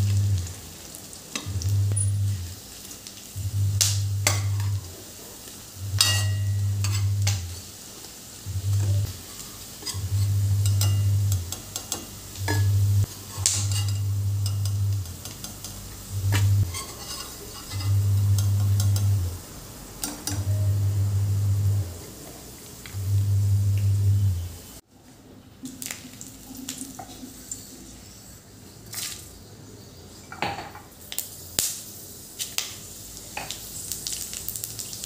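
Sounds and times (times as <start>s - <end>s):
fritters sizzling in hot oil: 0.0s - 24.8s, 30.9s - 35.0s
low cooktop hum: 0.0s - 35.0s
steel spoon scraping a pan: 4.1s - 4.9s, 5.8s - 7.7s, 8.4s - 19.4s.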